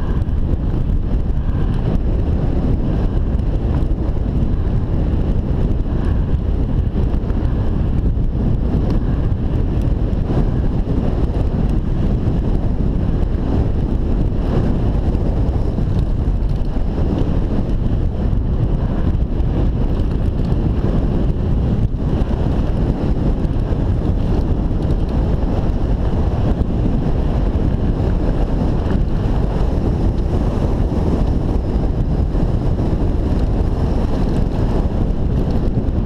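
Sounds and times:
bike clicks and rattles: 0.0 - 36.0
wind buffeting microphone: 0.0 - 36.0.

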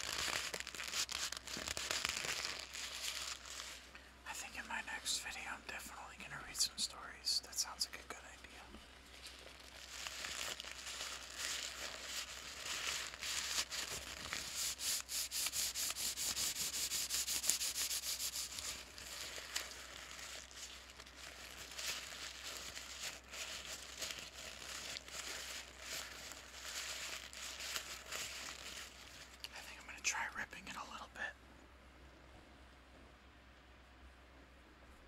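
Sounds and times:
paper bag crinkling: 0.0 - 3.9, 9.0 - 29.5.

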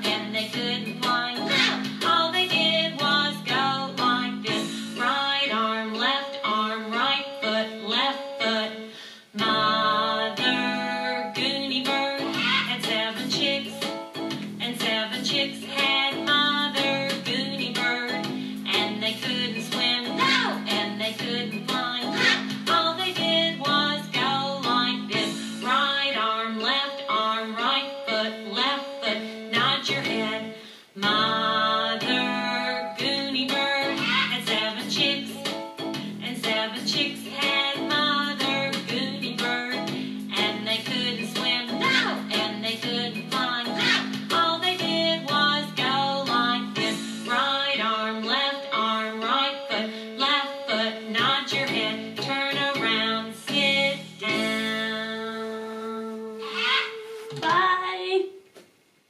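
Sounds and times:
children's song singing: 0.0 - 58.2.

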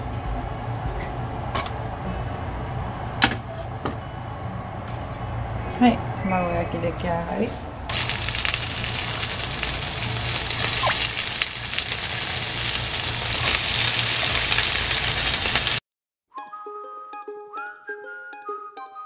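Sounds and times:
cabbage sizzling in frying pan: 7.9 - 15.8.

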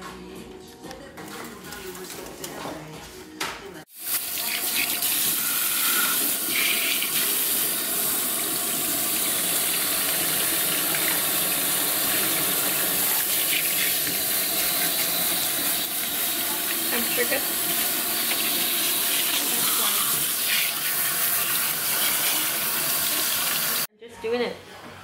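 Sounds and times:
water spraying onto hair: 4.0 - 23.9.

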